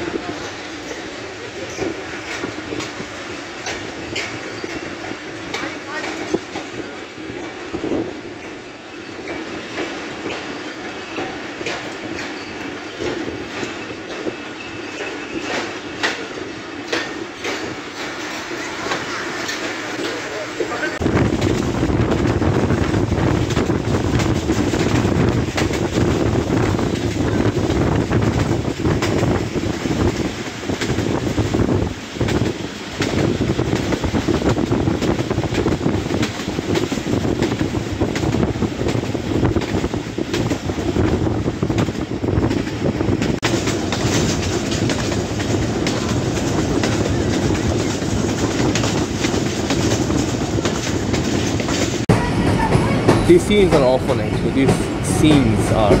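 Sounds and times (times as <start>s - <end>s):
rail clacks: 0.0s - 56.0s
train wheels rumbling on rails: 0.0s - 56.0s
wind on microphone: 21.0s - 53.3s.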